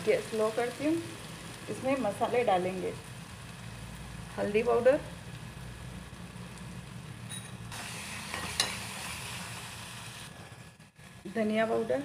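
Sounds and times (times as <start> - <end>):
gravy frying in a pan: 0.0 - 12.0
steel spoon scraping a pan: 7.3 - 9.1.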